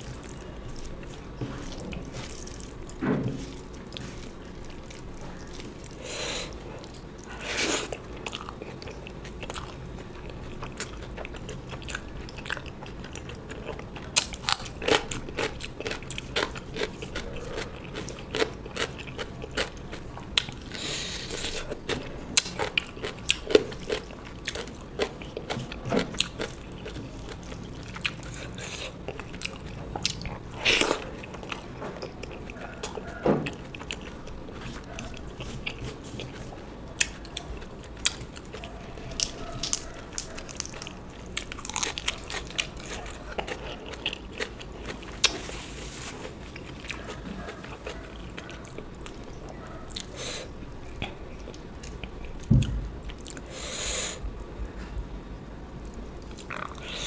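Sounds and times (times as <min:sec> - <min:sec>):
person chewing and crunching food: 0:00.0 - 0:54.2, 0:55.8 - 0:57.0.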